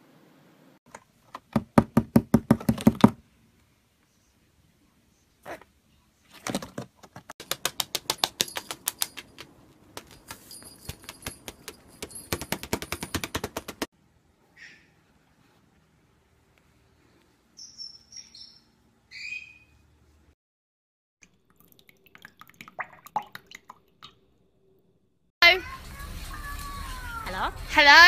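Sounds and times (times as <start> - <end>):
parrot tapping rapidly: 7.4 - 13.9
faint high chirp: 17.6 - 19.8.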